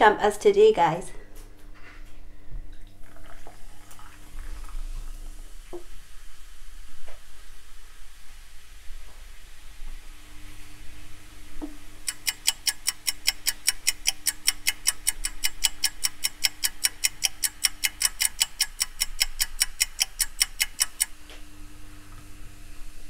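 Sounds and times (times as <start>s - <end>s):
rapid clock-like ticking: 12.0s - 21.1s.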